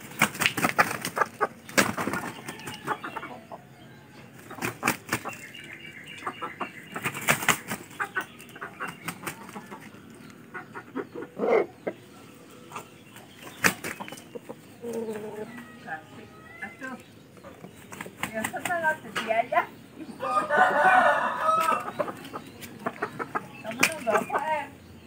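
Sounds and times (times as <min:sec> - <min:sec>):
wings flapping: 0:00.0 - 0:03.0, 0:04.4 - 0:05.4, 0:06.9 - 0:08.1, 0:13.4 - 0:14.1
chickens clucking: 0:00.0 - 0:25.0.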